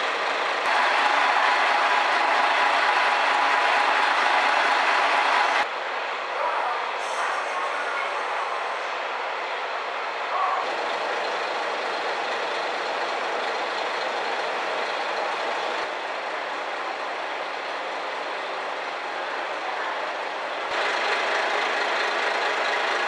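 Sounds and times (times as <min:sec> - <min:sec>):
train cabin hum and rush: 0:00.0 - 0:23.0.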